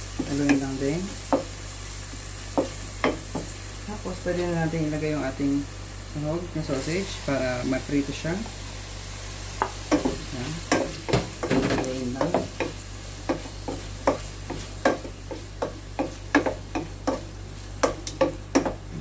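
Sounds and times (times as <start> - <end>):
light frying sizzle: 0.0 - 19.0
spatula knocking against pan: 2.5 - 3.6, 9.6 - 18.9.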